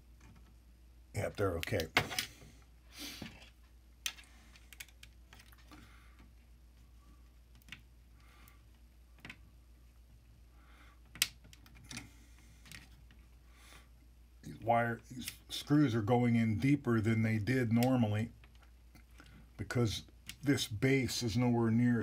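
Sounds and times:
light clicks of plastic parts: 3.3s - 6.5s, 17.7s - 20.5s.

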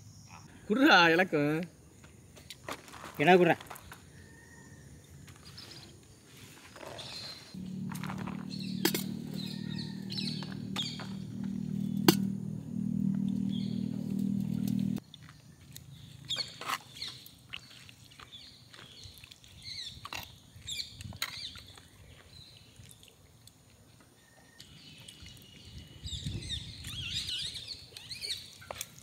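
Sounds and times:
small birds chirping: 6.8s - 12.1s, 13.2s - 23.5s, 24.5s - 29.0s.

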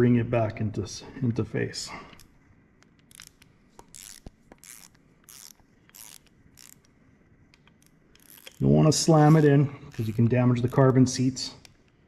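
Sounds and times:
ratchet wrench clicking: 3.0s - 6.9s, 7.6s - 8.6s, 9.2s - 11.0s.

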